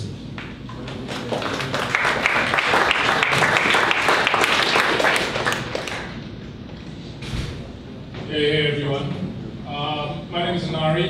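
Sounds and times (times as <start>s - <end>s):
audience applauding: 0.7s - 6.2s.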